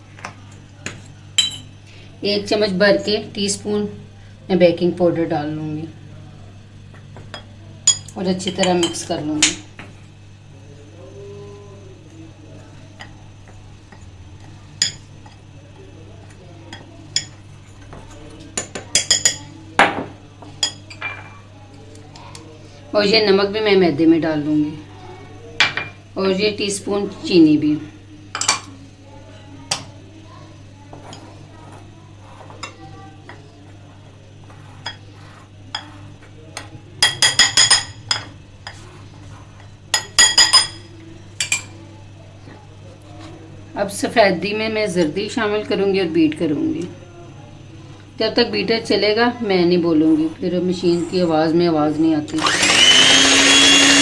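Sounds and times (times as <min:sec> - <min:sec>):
spoon clinking against glass bowl: 0:01.4 - 0:01.7.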